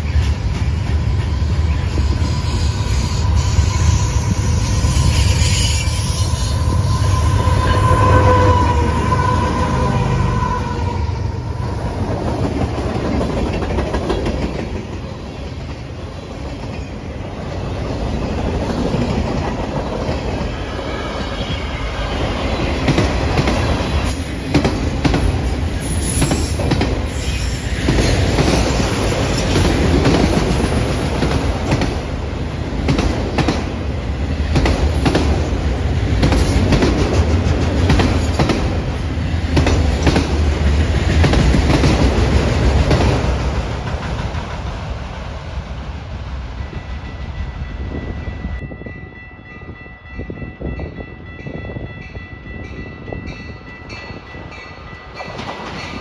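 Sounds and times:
high wheel squeal: 1.2s - 9.9s, 25.8s - 28.3s
train wheels clattering over joints: 12.0s - 15.8s.

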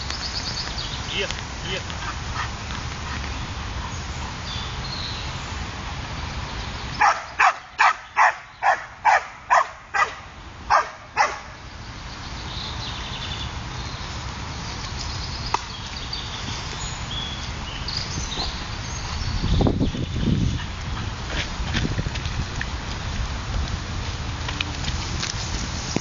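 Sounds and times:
dog barking sharply: 7.0s - 11.5s.

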